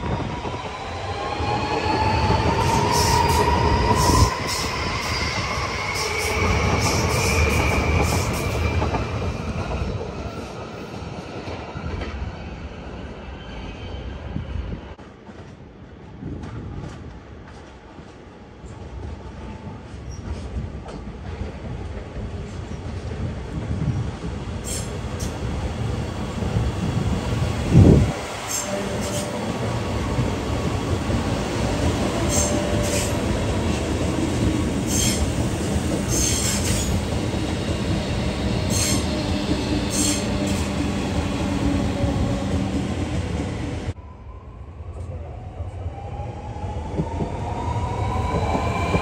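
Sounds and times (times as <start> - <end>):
train passing rumble: 15.0 - 49.0.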